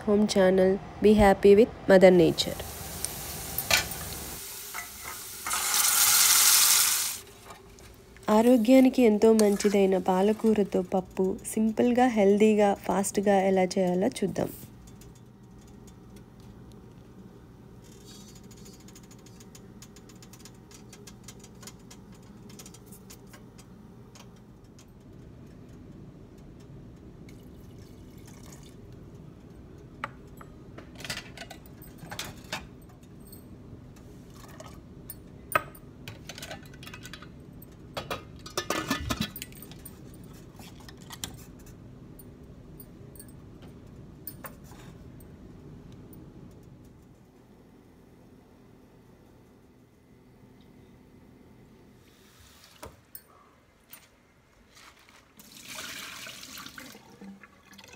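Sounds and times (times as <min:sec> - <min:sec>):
metal clinks and knocks: 0:35.1 - 0:41.5.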